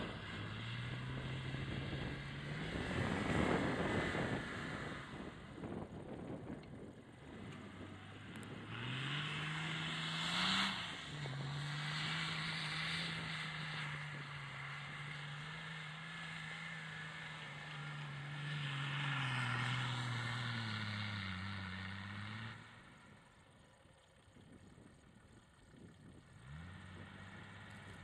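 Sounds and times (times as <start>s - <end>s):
diesel engine revving hard: 0.0s - 5.8s, 7.9s - 22.9s.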